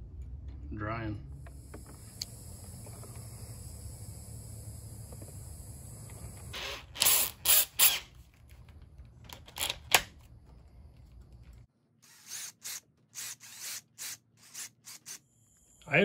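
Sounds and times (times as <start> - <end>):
cordless drill spinning: 1.5 - 8.2, 12.0 - 15.3.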